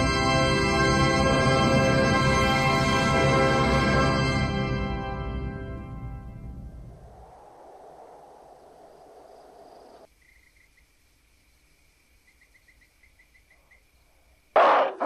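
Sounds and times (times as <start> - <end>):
soft desert wind: 5.9 - 15.0
high insect chirps: 6.9 - 14.6.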